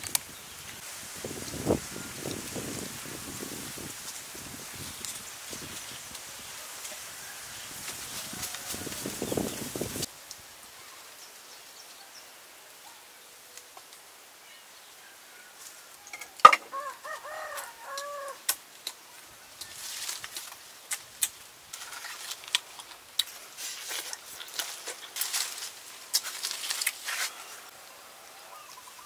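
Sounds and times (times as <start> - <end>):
chicken calling: 16.4 - 18.4.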